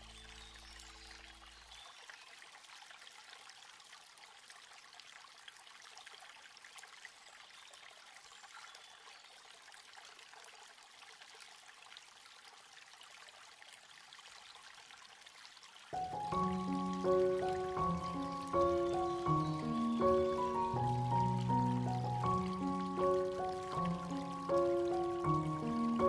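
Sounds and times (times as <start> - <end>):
faint running water: 0.0 - 26.0.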